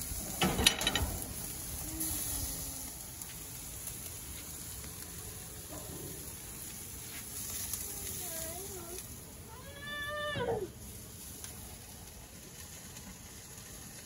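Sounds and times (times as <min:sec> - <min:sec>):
meat sizzling on a grill: 0:00.0 - 0:14.0.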